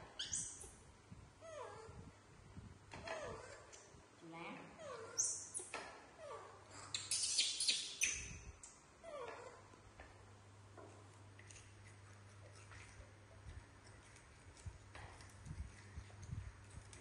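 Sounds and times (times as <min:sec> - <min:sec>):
baby monkey squeaking: 0:00.1 - 0:00.7, 0:04.8 - 0:08.5
monkeys crunching food: 0:11.1 - 0:17.0.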